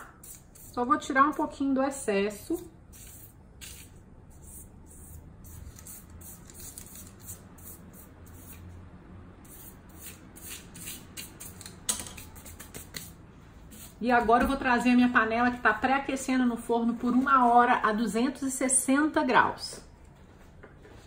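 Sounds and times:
brush swishing on dough: 0.0 - 1.0, 2.5 - 8.8, 12.2 - 14.3.

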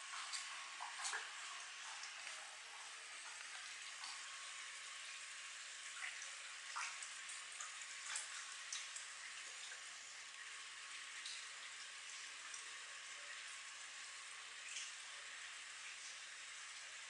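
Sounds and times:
water splashes and plops: 0.0 - 4.5, 5.8 - 9.9
pond water trickling: 0.0 - 17.0.

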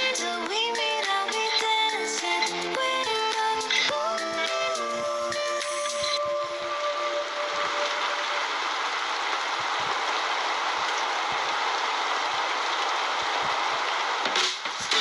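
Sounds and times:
steady rain: 0.0 - 15.0
raindrop taps: 7.7 - 15.0.

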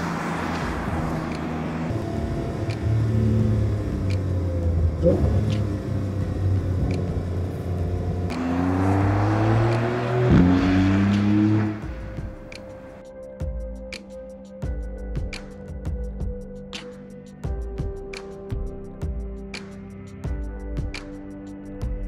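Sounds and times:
car engine accelerating: 0.0 - 13.0.

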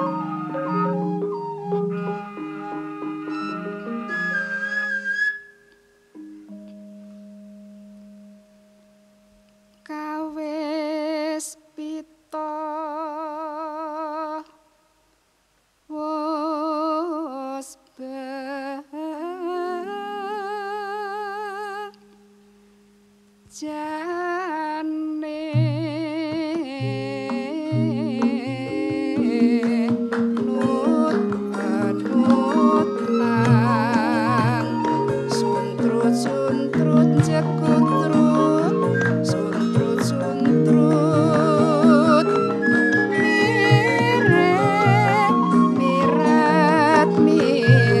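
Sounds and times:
woman singing with vibrato: 0.0 - 3.7, 9.8 - 14.7, 15.9 - 22.1, 23.5 - 48.0
gamelan drum strokes: 0.0 - 10.2, 25.6 - 48.0
low held tone: 0.0 - 10.4
metallophones: 0.0 - 10.4, 26.9 - 48.0.

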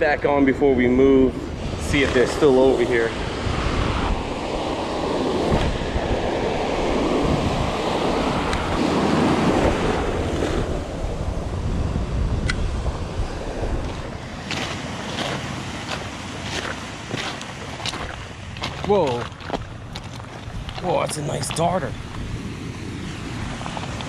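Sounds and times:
ocean surf breaking: 0.0 - 24.0
wind buffeting microphone: 0.0 - 24.0
footsteps on stony beach: 13.6 - 22.4, 23.2 - 24.0.

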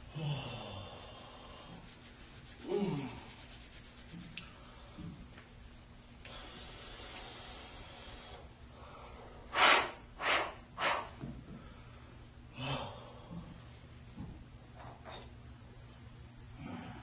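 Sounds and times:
man blowing his nose: 2.6 - 3.4, 9.5 - 11.0.

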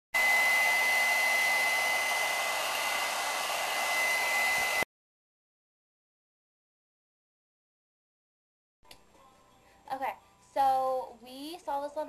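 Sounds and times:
hair dryer blowing: 0.2 - 4.9.

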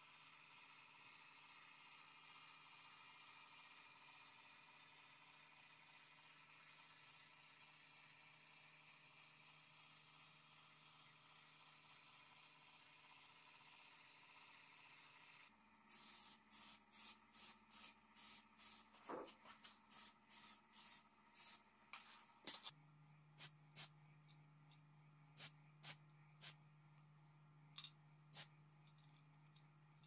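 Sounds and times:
aerosol spray can hissing: 15.9 - 19.0, 19.9 - 21.6, 23.4 - 23.9, 25.4 - 26.6, 28.3 - 28.5.

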